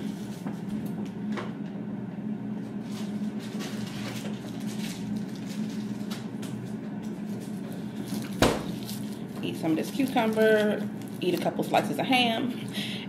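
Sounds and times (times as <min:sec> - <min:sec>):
kitchen appliance humming: 0:00.0 - 0:13.0
food rustling in refrigerator: 0:02.6 - 0:12.0.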